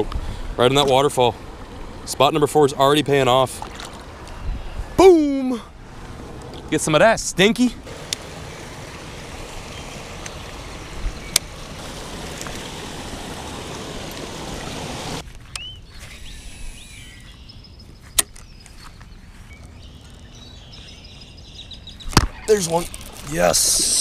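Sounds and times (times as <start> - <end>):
waterfall rushing over rocks: 7.9 - 15.2.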